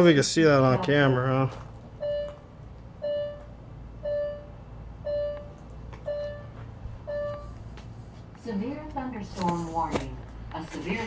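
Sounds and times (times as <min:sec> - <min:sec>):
electronic alert beeps: 0:02.0 - 0:02.4, 0:03.0 - 0:07.6.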